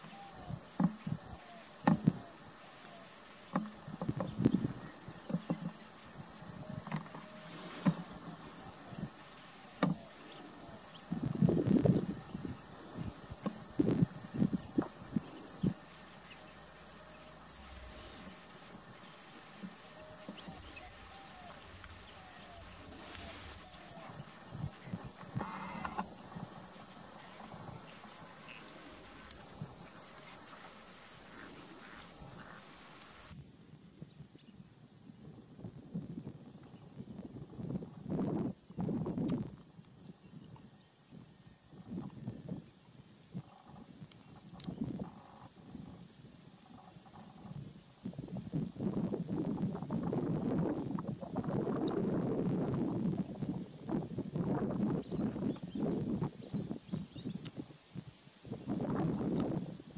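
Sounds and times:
insect trill: 0.0s - 34.0s.

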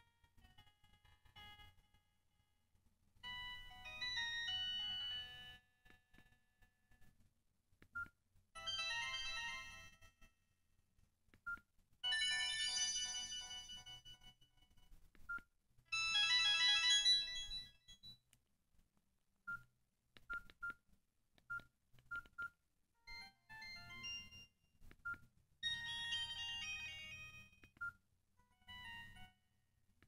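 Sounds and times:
melodic ringtone jingle: 8.6s - 9.9s, 12.1s - 14.2s, 16.0s - 18.0s, 25.6s - 27.4s.

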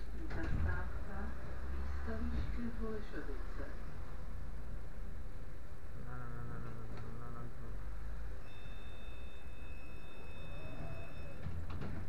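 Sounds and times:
tram low rumble and hum: 0.0s - 8.4s.

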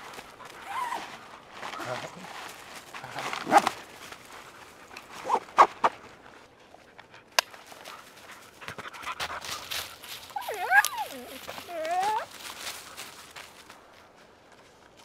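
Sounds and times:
backpack rustling: 0.0s - 4.3s, 10.4s - 13.0s.

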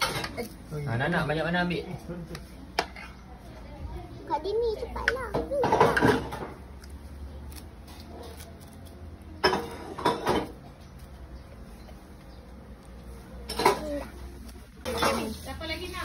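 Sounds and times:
dishes and cutlery clattering: 0.0s - 0.5s, 5.0s - 6.6s, 9.4s - 10.7s, 13.4s - 14.1s, 14.8s - 15.4s.

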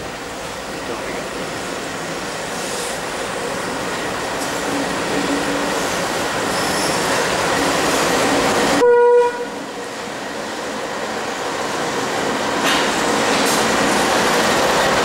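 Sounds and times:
rail noise: 0.0s - 15.0s
train horn blast: 8.8s - 9.6s.

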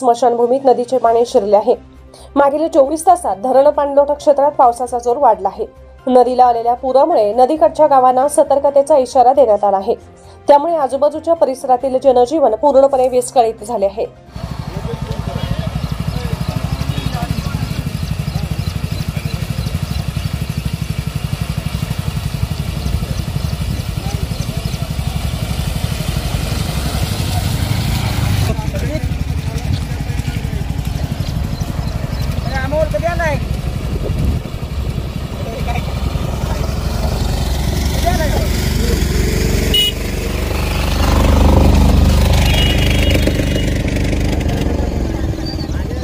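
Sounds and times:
motorcycle engine idling: 14.3s - 46.0s.

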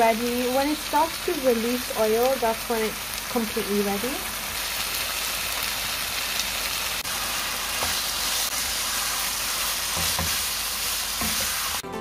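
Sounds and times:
filling sizzling in a frying pan: 0.0s - 11.8s.

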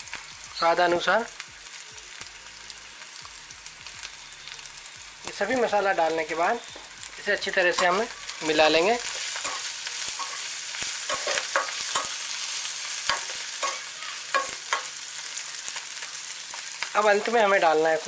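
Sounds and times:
food sizzling in a frying pan: 0.0s - 18.0s
metal spoon scraping a pan: 5.2s - 15.8s.

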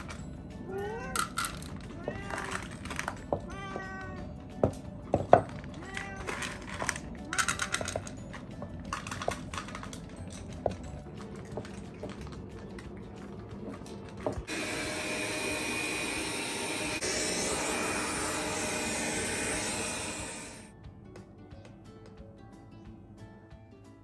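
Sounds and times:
cats crunching dry food: 1.2s - 3.6s, 5.3s - 14.5s
robot vacuum cleaner whirring: 14.4s - 20.7s.

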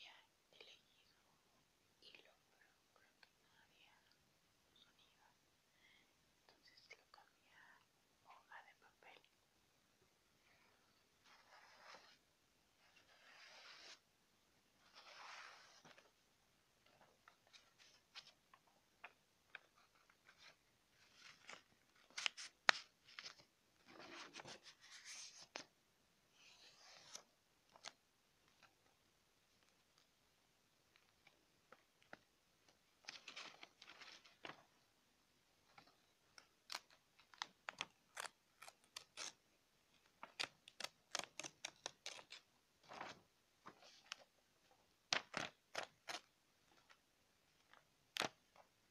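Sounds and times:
paper crinkling: 19.5s - 25.7s, 33.0s - 34.7s, 35.8s - 44.3s
paper rustling: 19.5s - 25.7s, 33.0s - 34.7s, 40.0s - 44.3s
paper crackling: 19.6s - 25.7s.

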